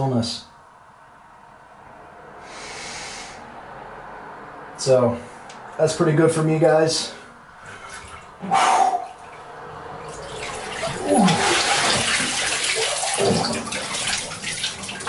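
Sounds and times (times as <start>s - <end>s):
bath water sloshing and splashing: 7.6s - 15.0s
water pouring off a body: 9.0s - 15.0s.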